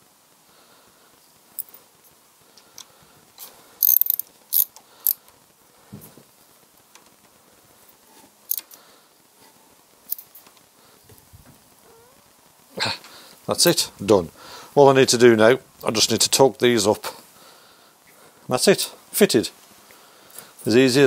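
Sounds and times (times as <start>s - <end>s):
ratchet clicking: 3.8s - 5.2s.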